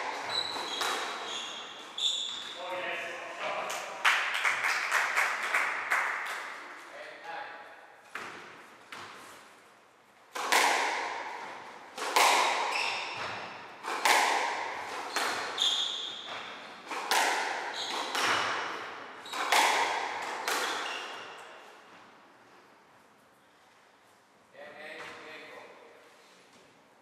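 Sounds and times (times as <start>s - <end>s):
squash ball striking rackets and walls: 0.0s - 2.7s, 8.0s - 9.5s, 10.3s - 21.9s.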